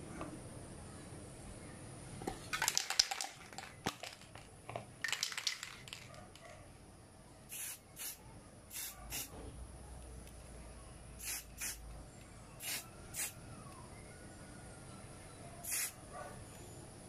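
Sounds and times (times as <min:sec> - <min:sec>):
aerosol spray can hissing: 0:07.5 - 0:09.3, 0:11.2 - 0:11.8, 0:12.6 - 0:13.4, 0:15.7 - 0:16.0.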